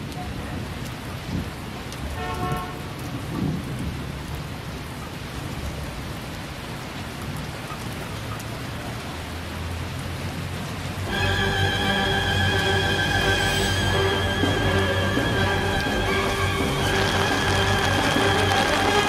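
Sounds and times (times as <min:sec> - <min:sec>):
heavy rain pouring: 0:00.0 - 0:19.0
runoff water rushing: 0:00.0 - 0:19.0
thunder rumbling: 0:11.0 - 0:19.0.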